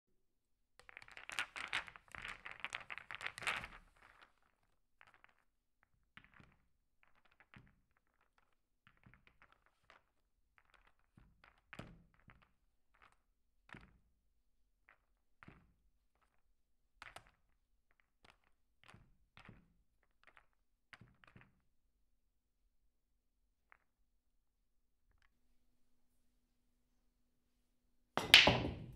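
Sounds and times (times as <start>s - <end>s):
billiard balls clattering together: 0.8s - 5.4s, 6.2s - 13.2s, 28.2s - 28.9s
cue and balls clicking: 0.8s - 14.0s, 14.8s - 16.4s, 17.0s - 21.8s, 28.2s - 28.9s.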